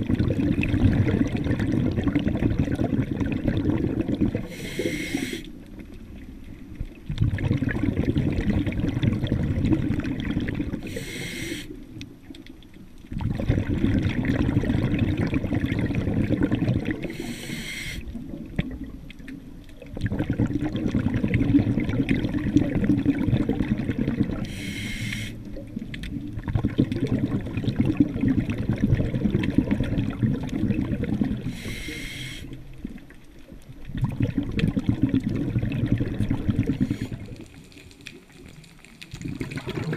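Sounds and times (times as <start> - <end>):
bubbling exhaled air: 0.0 - 5.6, 7.1 - 11.8, 13.1 - 19.0, 19.8 - 33.0, 33.8 - 38.5, 39.1 - 39.9
hissing regulator inhalations: 4.5 - 5.5, 10.8 - 11.8, 17.1 - 18.1, 24.4 - 25.4, 31.5 - 32.6, 36.8 - 37.2.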